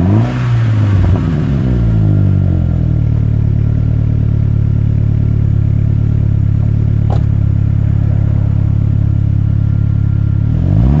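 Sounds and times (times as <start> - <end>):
car engine revving: 0.0 - 11.0
car engine idling: 0.7 - 11.0
car door shutting: 6.6 - 7.6.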